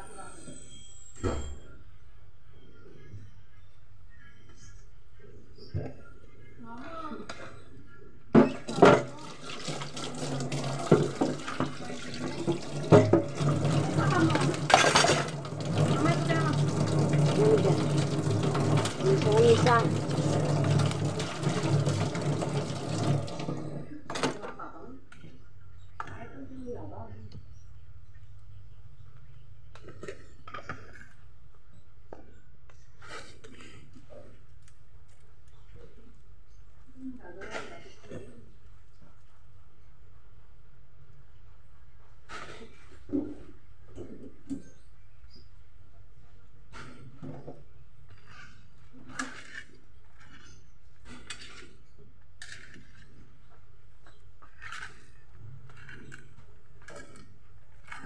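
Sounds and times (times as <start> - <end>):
wet rustling and scraping of kneading: 46.7 - 58.0.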